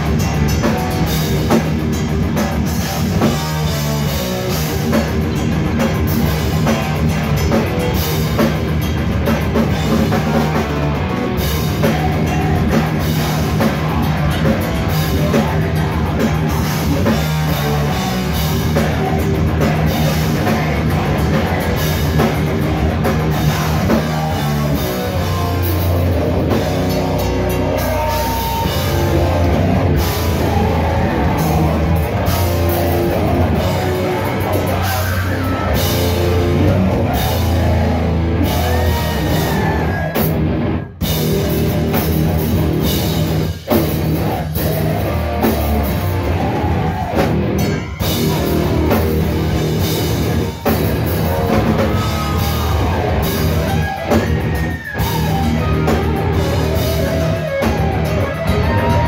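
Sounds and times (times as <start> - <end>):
bass guitar: 0.0 - 59.0
distorted electric guitar: 0.0 - 59.0
drum kit: 0.0 - 59.0
vocalist shouting: 36.6 - 40.3, 51.2 - 53.6.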